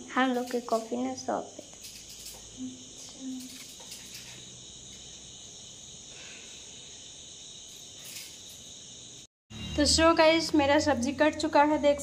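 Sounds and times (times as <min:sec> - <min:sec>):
crickets chirring: 0:00.0 - 0:12.0
knife cutting cabbage: 0:03.3 - 0:04.5.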